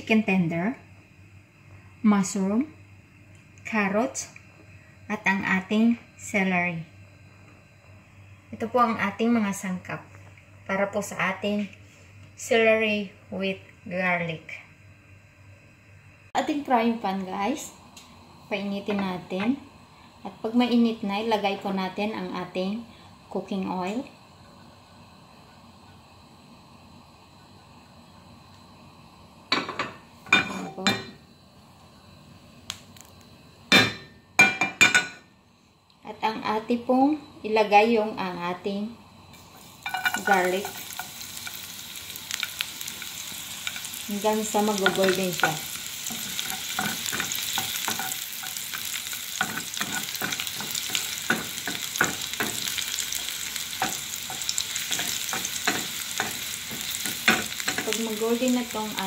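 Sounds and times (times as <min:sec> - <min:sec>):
garlic sizzling in frying pan: 0:16.4 - 0:27.4, 0:39.2 - 0:59.0.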